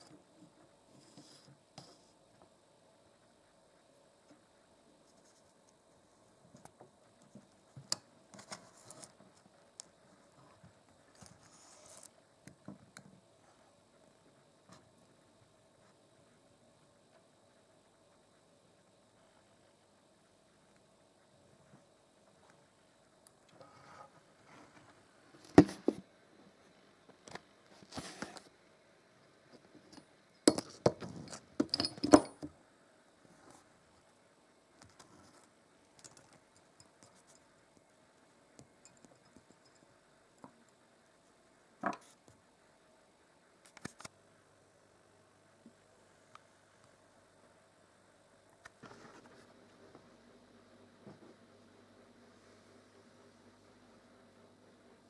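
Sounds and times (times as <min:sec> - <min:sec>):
metal parts clinking on hard surface: 0:30.5 - 0:32.5.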